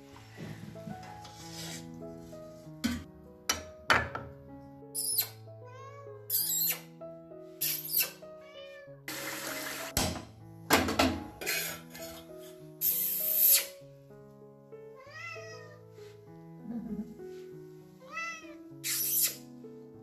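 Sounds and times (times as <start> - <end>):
background music: 0.0 - 20.0
cat meowing: 5.2 - 6.9, 7.7 - 9.1, 15.0 - 15.9, 18.0 - 19.4.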